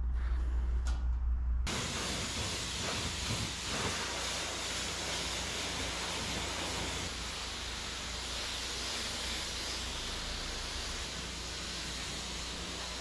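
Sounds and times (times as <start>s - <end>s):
low hum: 0.0s - 1.8s
pressure washer spray hiss: 1.7s - 13.0s.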